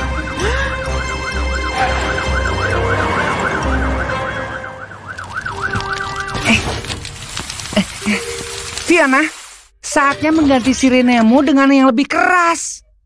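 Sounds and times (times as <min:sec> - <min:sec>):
cartoon siren wailing: 0:00.0 - 0:06.4.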